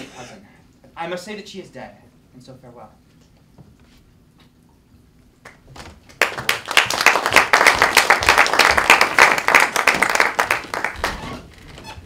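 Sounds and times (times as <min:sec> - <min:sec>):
audience applauding: 0:05.5 - 0:11.2.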